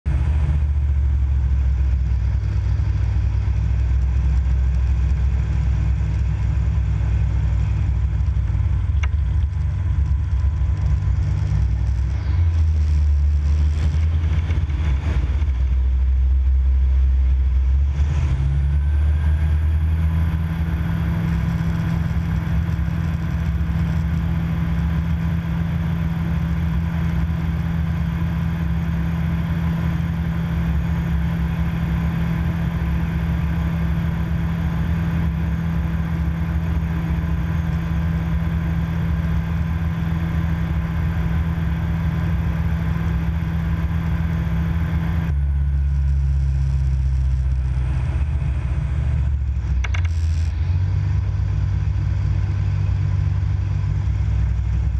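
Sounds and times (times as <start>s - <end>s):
propeller engine drone: 0.0s - 54.9s.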